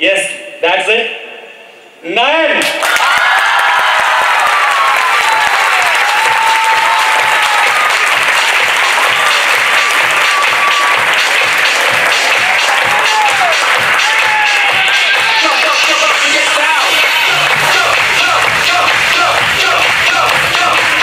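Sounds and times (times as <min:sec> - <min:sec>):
audience applauding: 0:02.7 - 0:21.0
background music: 0:06.0 - 0:21.0
steady beat: 0:06.2 - 0:21.0.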